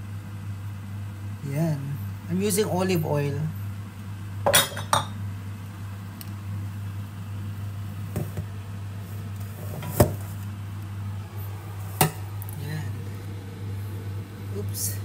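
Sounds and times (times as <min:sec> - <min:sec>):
low electrical hum: 0:00.0 - 0:15.0
glass bottle clinking on worktop: 0:04.5 - 0:05.2.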